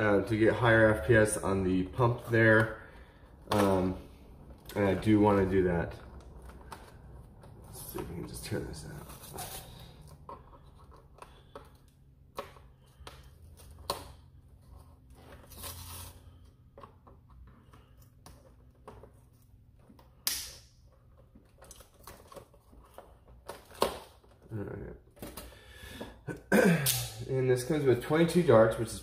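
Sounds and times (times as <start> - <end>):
sharp snap: 20.2 - 20.7, 26.8 - 27.3.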